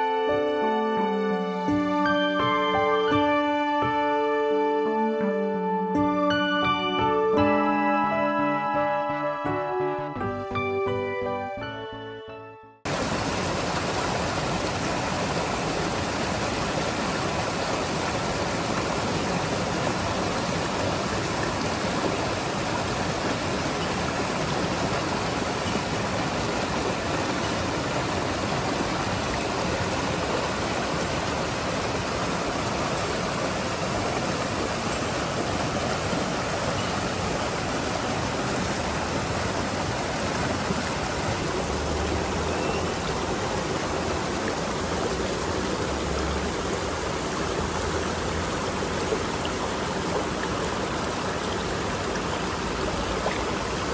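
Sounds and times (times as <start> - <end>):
stream rushing over stones: 12.9 - 53.9.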